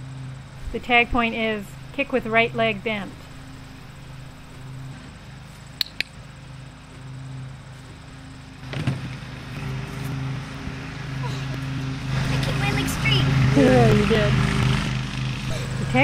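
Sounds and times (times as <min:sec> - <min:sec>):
low mechanical hum: 0:00.0 - 0:16.0
sharp clicks: 0:05.8 - 0:06.2.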